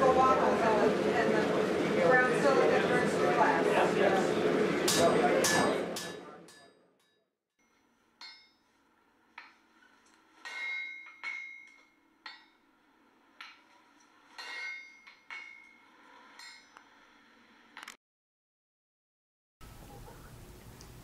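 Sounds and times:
hammer striking metal on anvil: 4.9s - 7.1s, 8.2s - 8.7s, 9.3s - 16.8s.

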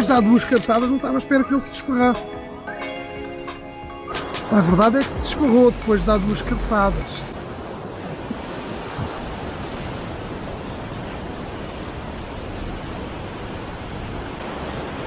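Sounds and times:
surf breaking over rocks: 4.2s - 15.0s.

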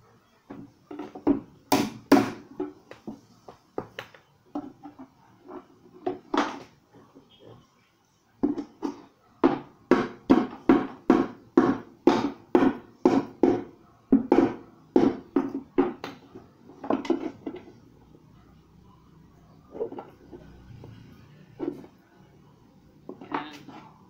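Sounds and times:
hammer driving nails into wood: 1.3s - 2.8s.

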